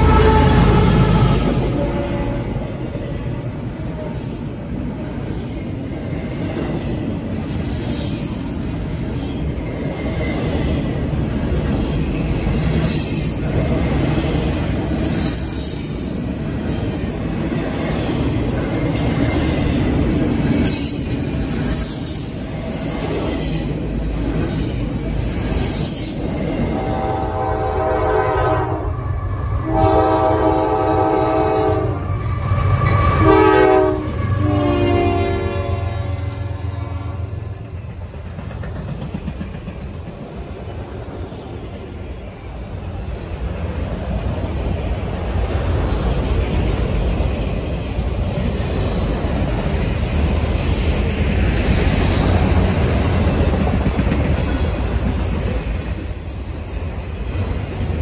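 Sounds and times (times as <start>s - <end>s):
locomotive air horn blasts: 0.0s - 2.7s, 26.8s - 37.5s
freight train wheels rumbling: 0.0s - 58.0s.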